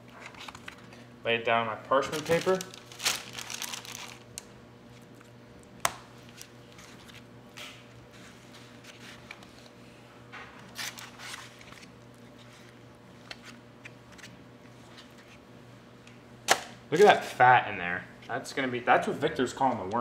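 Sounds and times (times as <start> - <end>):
steady low hum: 0.0 - 20.0
paper rustling: 2.0 - 4.2.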